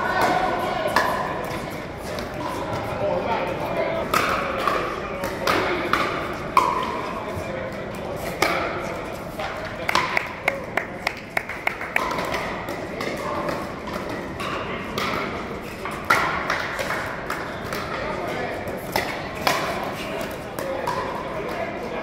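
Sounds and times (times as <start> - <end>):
paddles hitting plastic ball: 4.0 - 7.0, 9.7 - 18.0, 18.7 - 21.2.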